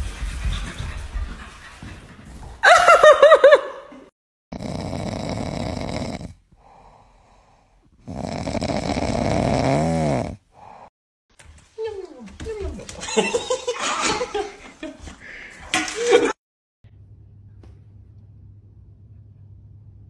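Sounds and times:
puppy snoring: 4.5s - 10.9s.

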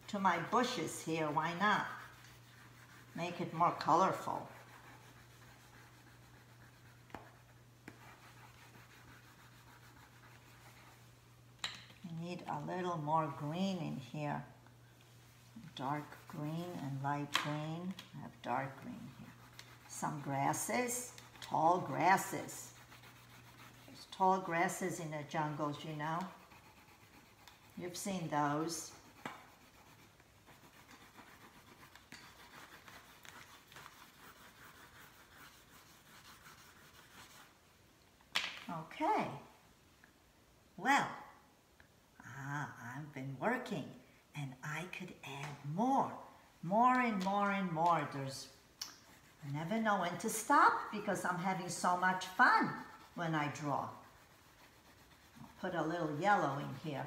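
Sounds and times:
crayon scratching on paper: 0.1s - 11.1s, 15.6s - 37.6s, 49.0s - 57.0s.

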